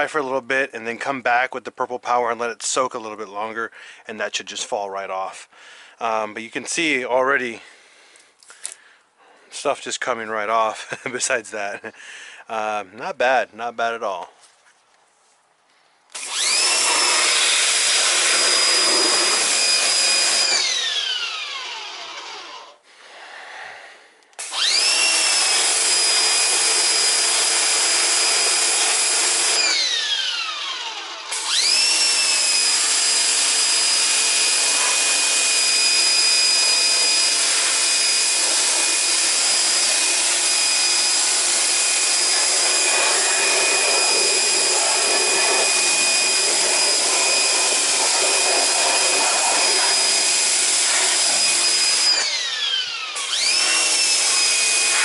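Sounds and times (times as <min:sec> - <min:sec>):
power tool motor whining: 0:16.1 - 0:22.8, 0:24.4 - 0:55.0.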